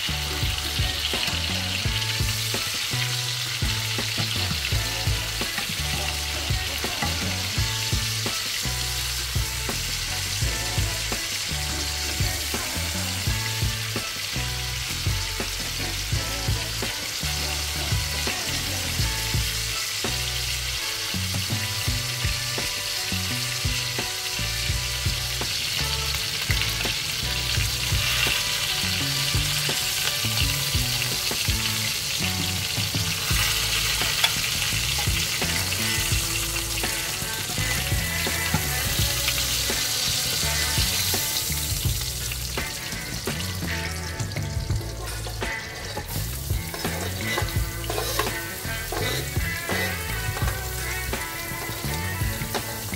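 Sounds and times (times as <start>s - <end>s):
chicken sizzling in oil: 0.0s - 52.9s
oil popping and spattering: 25.3s - 52.9s.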